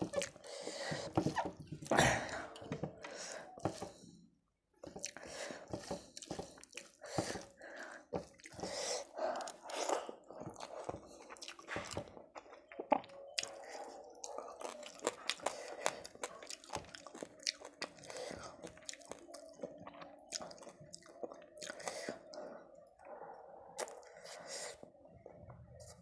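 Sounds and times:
fingers squishing rice and curry: 4.8 - 24.9
mouth chewing: 4.9 - 23.1, 23.7 - 25.0.

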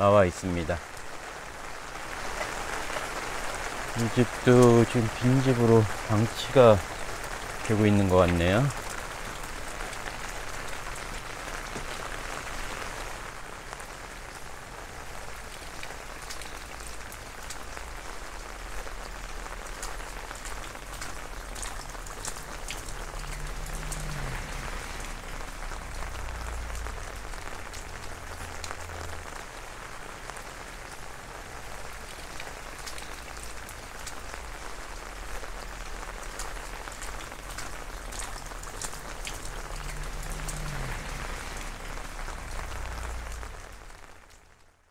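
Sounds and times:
steady rain falling: 0.0 - 44.9
drops dripping: 19.7 - 29.2, 35.6 - 44.4.

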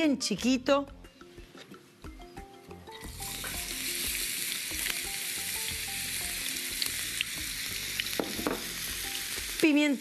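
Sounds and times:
onion sizzling in oil: 2.9 - 10.0.

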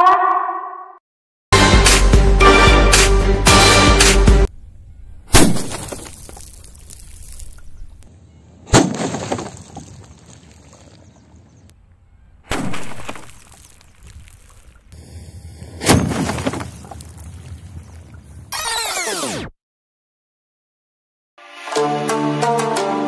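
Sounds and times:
potato cannon bangs: 5.3 - 6.1, 8.7 - 9.6
water bottles bursting and splashing: 5.3 - 7.6, 12.5 - 14.9, 15.8 - 17.6.

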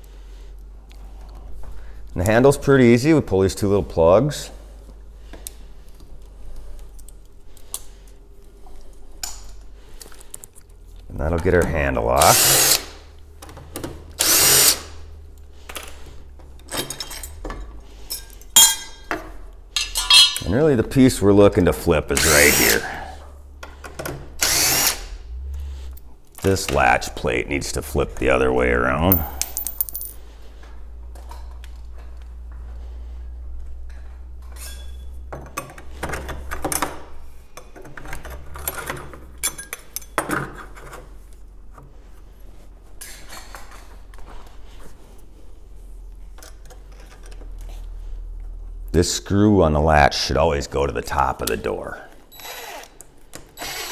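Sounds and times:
steady low hum: 0.0 - 35.2
metal clinks and light knocks: 16.6 - 20.4, 29.1 - 30.3
small metal parts clinking: 19.8 - 20.5, 29.1 - 30.3
power drill running: 24.4 - 25.1, 53.6 - 53.9.

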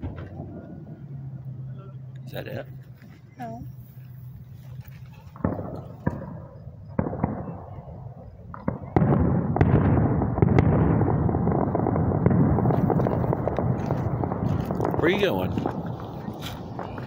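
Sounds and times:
distant fireworks bangs: 0.0 - 1.2, 4.8 - 17.0
continuous fireworks rumble: 0.0 - 1.6, 2.3 - 17.0.

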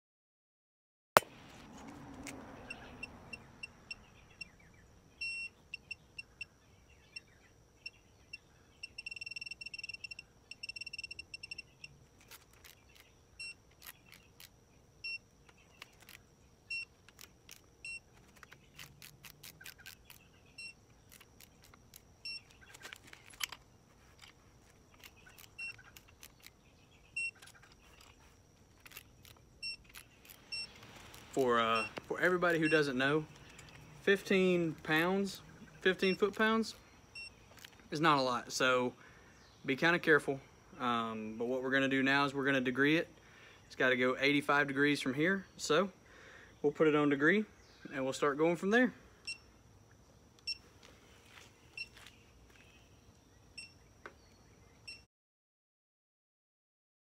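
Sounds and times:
torque wrench high beeps: 5.2 - 6.5, 8.8 - 11.7, 13.4 - 14.2, 15.0 - 15.2, 17.8 - 18.1, 20.6 - 21.2, 22.2 - 22.5, 25.5 - 25.8, 27.2 - 28.1, 29.6 - 30.8, 31.4 - 33.0
ratchet clicks: 13.7 - 14.5, 15.8 - 23.6, 24.2 - 26.6, 27.2 - 32.0.

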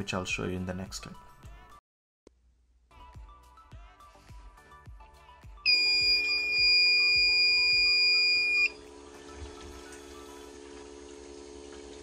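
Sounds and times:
high alarm beep: 5.7 - 8.8.

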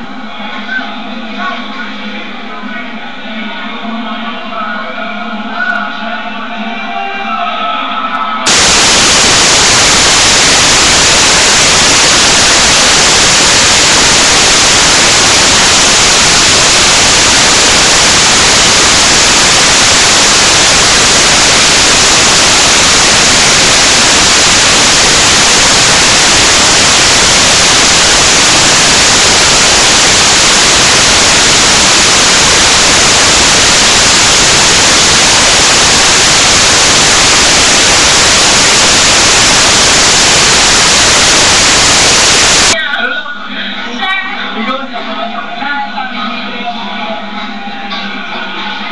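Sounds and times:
static hiss: 8.5 - 42.8.

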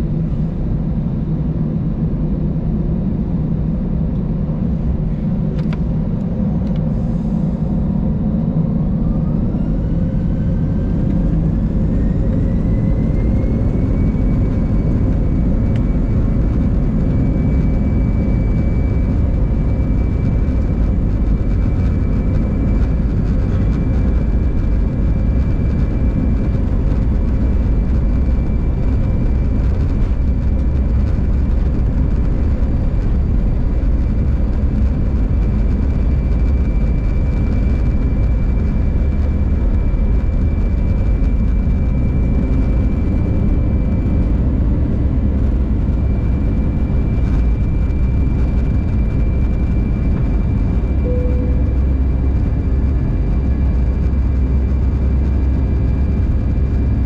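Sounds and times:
jet engine whine: 0.0 - 57.0
low engine rumble: 0.0 - 57.0.

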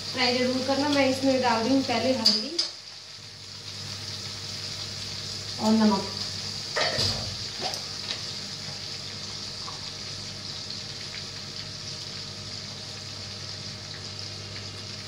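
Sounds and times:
tomatoes sizzling in oil: 0.0 - 15.0.

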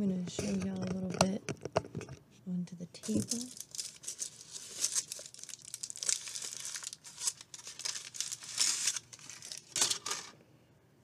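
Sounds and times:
foil wrapper crinkling and tearing: 3.1 - 10.4.

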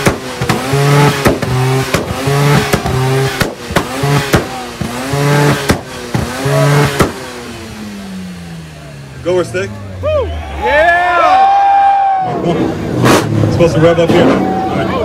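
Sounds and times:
exhaust pops and bangs: 0.0 - 7.6
engine revving: 0.0 - 11.4, 12.3 - 15.0.

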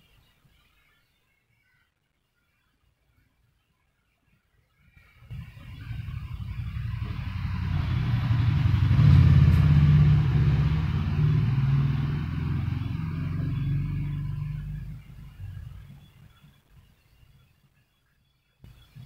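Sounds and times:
passing vehicle engine: 5.3 - 16.1.

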